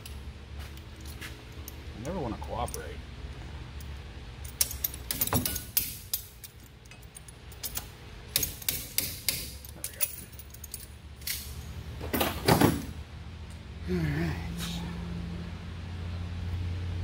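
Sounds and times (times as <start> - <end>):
low hum: 0.0 - 17.0
pliers clicking on metal: 3.8 - 11.5.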